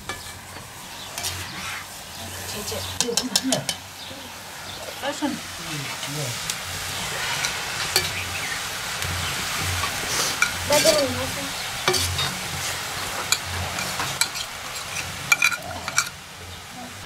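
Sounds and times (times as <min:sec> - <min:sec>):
food sizzling in a wok: 0:00.0 - 0:17.0
metal spatula scraping pan: 0:11.8 - 0:16.2.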